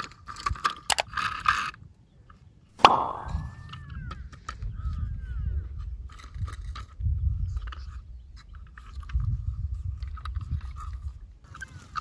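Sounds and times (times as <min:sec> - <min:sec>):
toy tractor clicking and rattling: 0:00.0 - 0:01.8.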